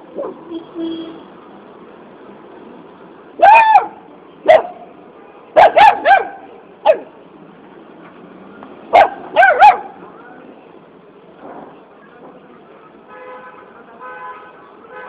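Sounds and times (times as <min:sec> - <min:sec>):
puppy yapping: 0:03.4 - 0:04.8, 0:05.6 - 0:07.1, 0:09.0 - 0:09.9.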